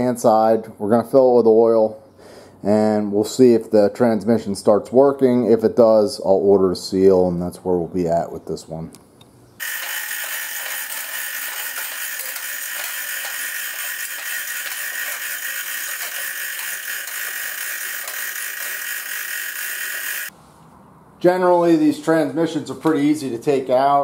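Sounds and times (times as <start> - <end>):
chain hoist rattling: 9.6 - 20.3.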